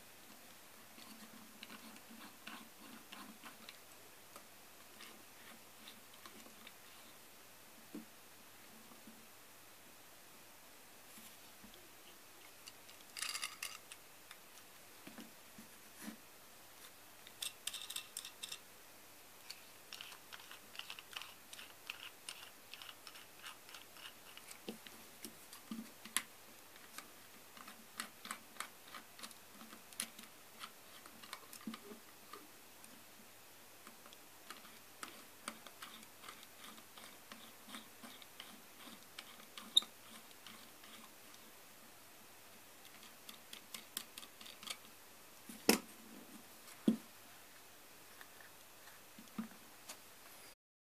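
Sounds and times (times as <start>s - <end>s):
small metal parts clicking: 12.6s - 14.0s, 17.4s - 18.6s.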